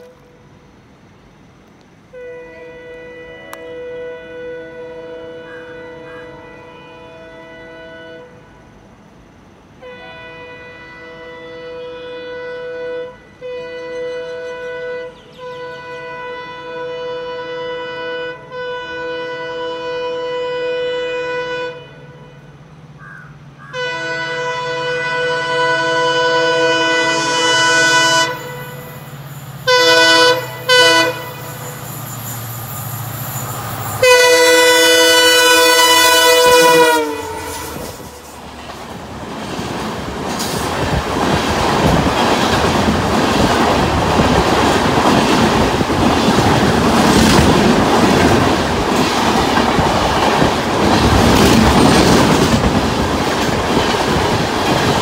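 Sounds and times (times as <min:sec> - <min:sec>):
locomotive horn blasts: 0:02.1 - 0:08.6, 0:09.8 - 0:22.6, 0:23.7 - 0:32.0, 0:34.0 - 0:38.2.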